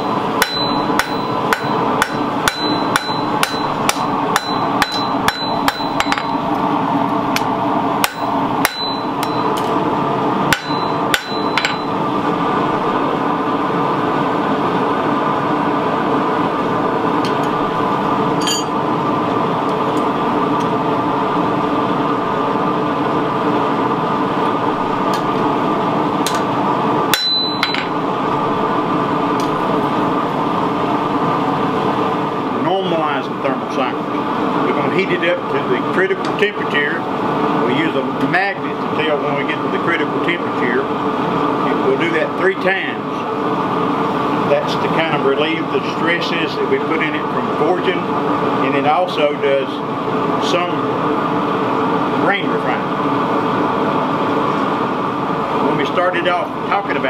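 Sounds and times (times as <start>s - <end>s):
hammer striking metal on anvil: 0.0s - 6.4s, 7.4s - 9.7s, 10.5s - 12.0s, 18.4s - 18.8s, 27.1s - 28.0s
steady mechanical drone: 0.0s - 57.0s.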